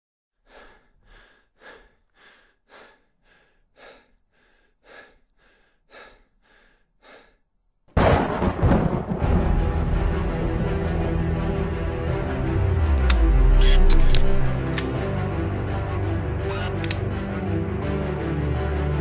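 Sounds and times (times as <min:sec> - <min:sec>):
person breathing heavily: 0:00.4 - 0:07.6
music: 0:08.9 - 0:19.0.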